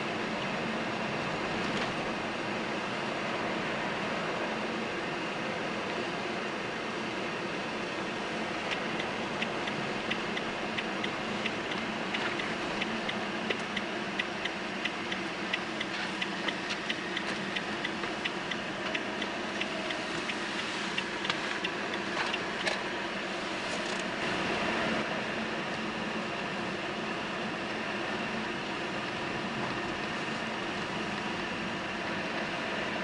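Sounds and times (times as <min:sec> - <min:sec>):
car cabin road noise: 0:00.0 - 0:33.0
turn indicator relay clicking: 0:08.7 - 0:20.4.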